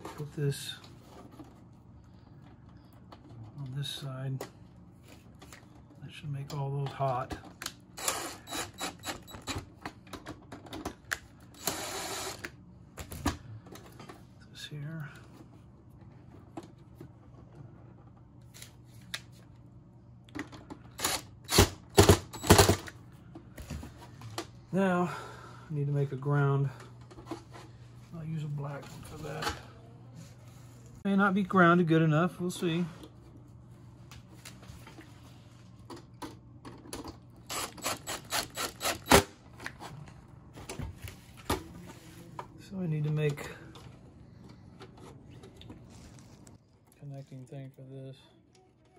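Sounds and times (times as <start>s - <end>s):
cordless driver running: 8.0s - 9.4s, 11.6s - 12.5s, 21.0s - 22.8s, 37.5s - 39.2s.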